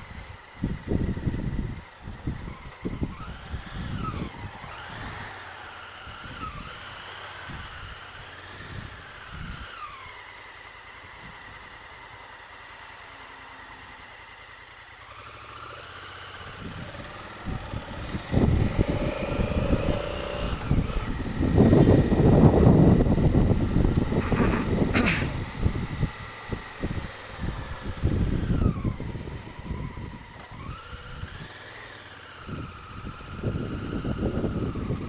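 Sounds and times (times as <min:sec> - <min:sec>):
wind rumble on microphone: 0:00.0 - 0:10.0, 0:16.5 - 0:31.7, 0:32.3 - 0:35.0
motorcycle engine idling and revving: 0:00.0 - 0:35.0.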